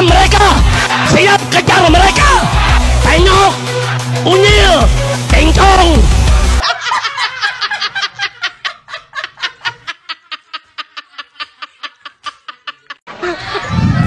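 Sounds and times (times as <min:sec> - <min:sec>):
person laughing: 0:06.6 - 0:14.0.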